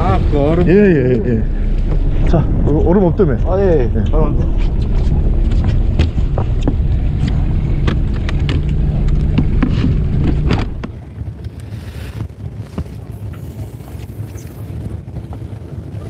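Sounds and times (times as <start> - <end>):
boat engine humming: 0.0 - 16.0
sea: 0.0 - 16.0
wind on microphone: 0.0 - 16.0
gear clicking and knocking: 4.7 - 11.0.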